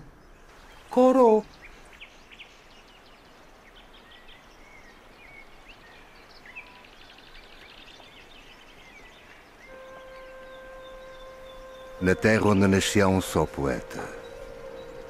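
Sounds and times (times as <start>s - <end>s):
outdoor background hiss: 0.0s - 15.0s
small birds chirping: 0.0s - 15.0s
steady pitched tone: 9.7s - 15.0s.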